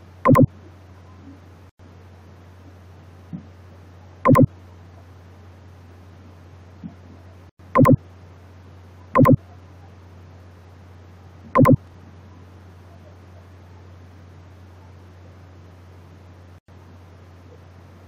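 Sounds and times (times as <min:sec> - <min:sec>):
steady low hum: 0:00.0 - 0:18.0
loud buzzing blips: 0:00.3 - 0:00.5, 0:04.3 - 0:04.5, 0:07.8 - 0:08.0, 0:09.2 - 0:09.4, 0:11.6 - 0:11.8.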